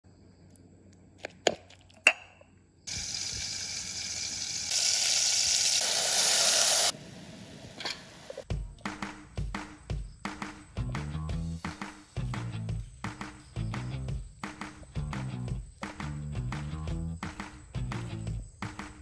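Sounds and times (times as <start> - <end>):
food sizzling in a pan: 2.9 - 8.4.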